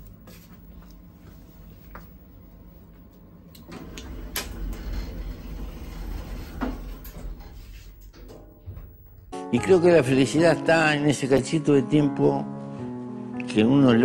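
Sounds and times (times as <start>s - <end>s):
lift mechanical rumble: 1.5s - 9.4s.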